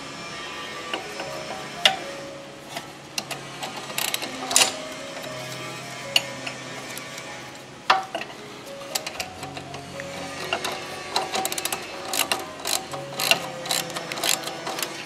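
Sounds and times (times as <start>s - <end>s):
spanner clinking on metal: 10.5s - 15.0s.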